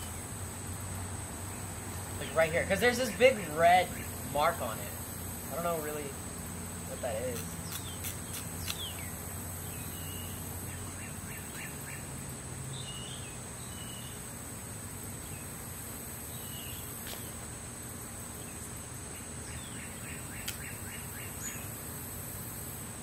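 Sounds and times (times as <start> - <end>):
high-pitched insect drone: 2.2 - 23.0
bird chirps: 6.9 - 12.1, 12.7 - 14.2, 18.4 - 21.7
sharp click: 7.3 - 9.0, 20.4 - 20.7.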